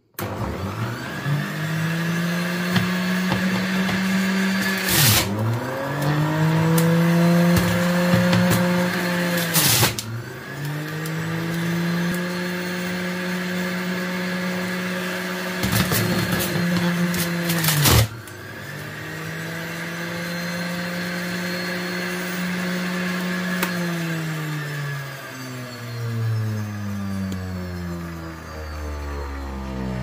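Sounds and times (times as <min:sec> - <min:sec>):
juicer motor whining: 0:00.0 - 0:30.0
clattering and grinding produce: 0:15.6 - 0:18.1.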